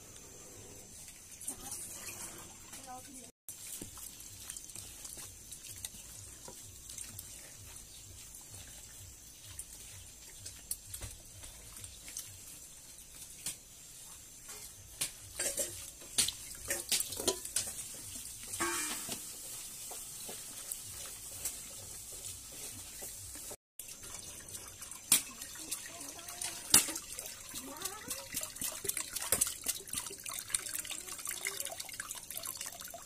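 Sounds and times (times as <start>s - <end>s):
small clicks and splashes: 1.0s - 33.0s
hands squelching chicken in liquid: 3.5s - 13.4s, 24.2s - 33.0s.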